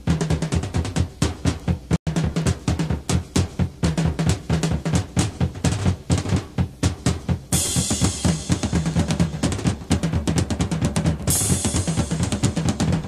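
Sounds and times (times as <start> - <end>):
drum kit beat: 0.0 - 13.0
cymbal crash: 11.3 - 12.8.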